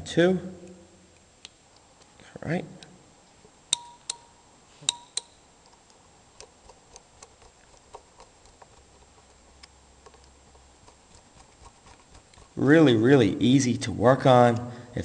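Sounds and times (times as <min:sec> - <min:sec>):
sharp metal clicks of relay parts: 0:03.7 - 0:11.0
screwdriver turning small screw: 0:04.9 - 0:12.6.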